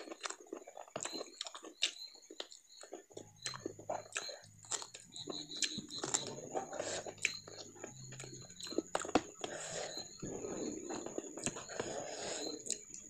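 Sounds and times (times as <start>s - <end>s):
chewing and lip smacks: 0.0s - 13.0s
low steady hum: 3.2s - 13.0s.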